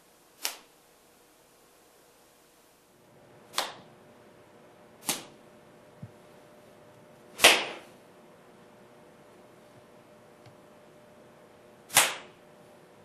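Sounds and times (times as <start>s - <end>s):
speed bag slaps: 0.4s - 0.7s, 3.5s - 3.9s, 5.0s - 5.4s, 7.4s - 7.9s, 11.9s - 12.4s.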